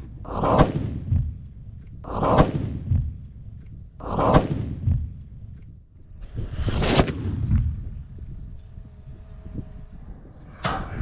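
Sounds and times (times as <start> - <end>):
rocket motor exploding: 6.3 - 8.6.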